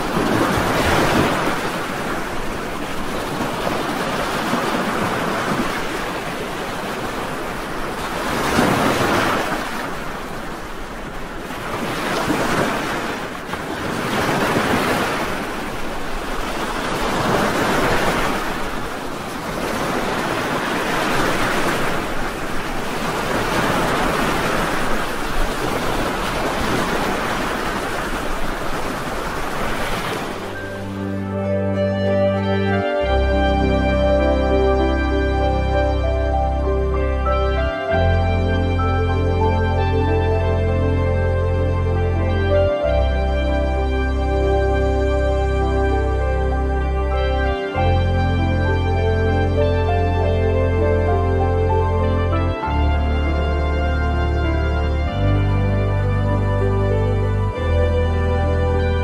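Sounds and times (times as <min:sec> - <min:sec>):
ocean surf breaking on beach: 0:00.0 - 0:31.4.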